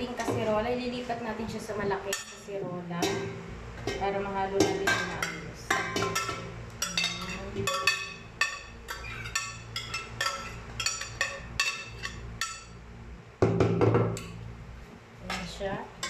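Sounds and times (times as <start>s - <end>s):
metal spoon clinking on glass: 6.0s - 12.8s
knock: 13.4s - 14.2s.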